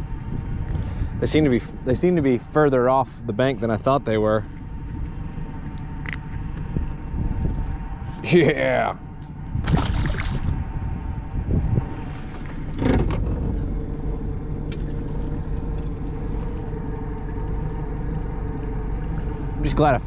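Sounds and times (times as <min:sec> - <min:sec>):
boat motor humming: 0:00.0 - 0:20.0.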